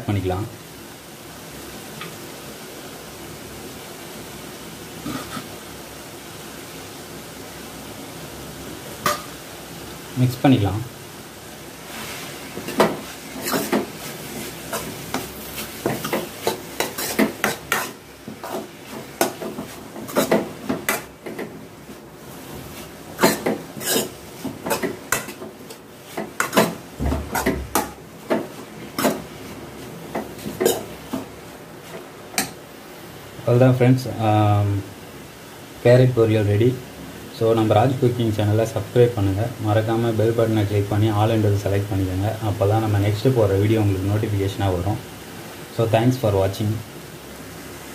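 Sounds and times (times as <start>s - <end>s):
steel spoon scraping metal pan: 12.0s - 21.1s, 23.2s - 28.0s.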